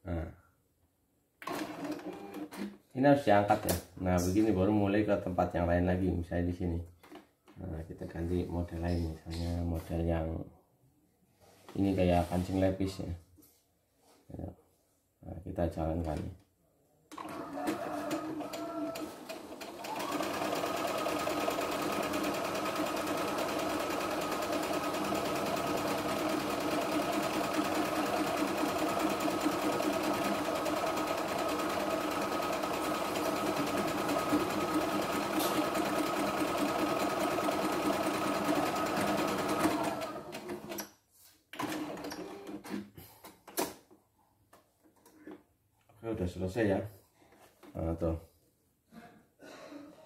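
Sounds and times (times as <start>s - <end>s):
sewing machine stitching: 1.4s - 2.8s, 17.1s - 40.9s, 41.6s - 42.8s.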